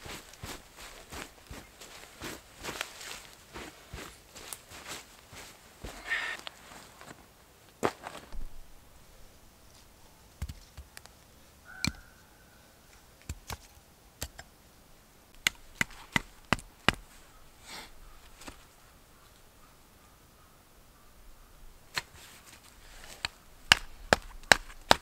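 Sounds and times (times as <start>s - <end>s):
wood sticks being chopped: 10.4s - 11.1s, 15.4s - 17.1s, 21.9s - 22.2s, 23.0s - 25.0s.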